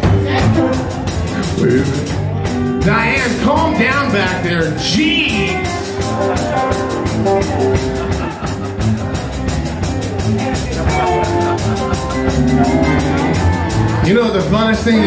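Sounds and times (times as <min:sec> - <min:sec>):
drum kit fast beat: 0:00.0 - 0:15.0
electric guitar: 0:00.0 - 0:15.0
rock band playing: 0:00.0 - 0:15.0.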